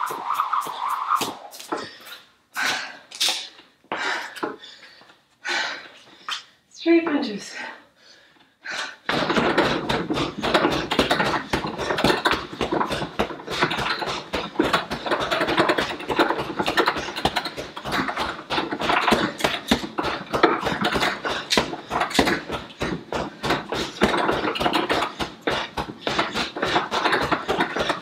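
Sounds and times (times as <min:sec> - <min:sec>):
punches thudding on punching bag: 0:09.1 - 0:28.0.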